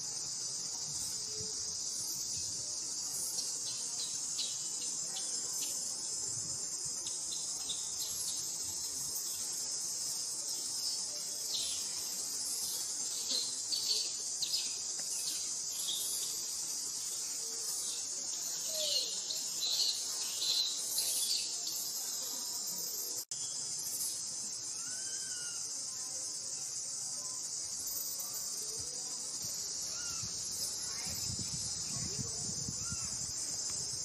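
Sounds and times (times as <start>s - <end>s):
high-pitched insect chorus: 0.0s - 34.0s
short insect chirps: 0.0s - 34.0s.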